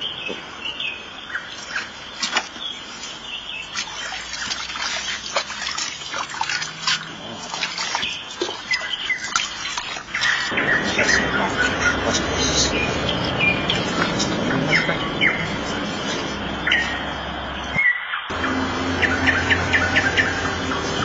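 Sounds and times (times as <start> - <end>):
birds chirping: 0.0 - 21.0
water splashing in basin: 1.4 - 17.2.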